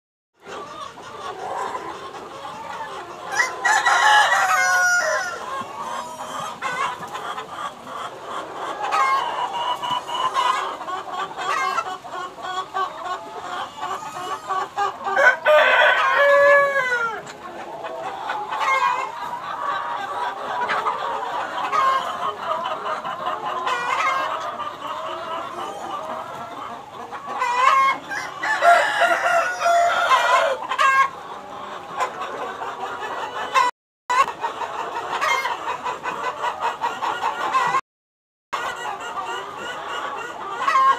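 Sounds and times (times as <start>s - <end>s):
hens clucking: 0.4s - 37.8s, 38.6s - 40.9s
roosters crowing: 3.3s - 6.5s, 15.1s - 17.3s, 27.5s - 31.0s.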